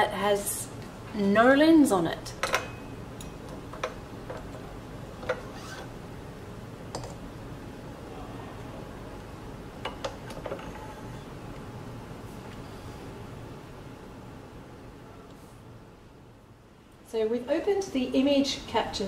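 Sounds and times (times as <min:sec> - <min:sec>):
steady low hum: 0:00.0 - 0:19.0
metal clicks and knocks: 0:02.4 - 0:04.6.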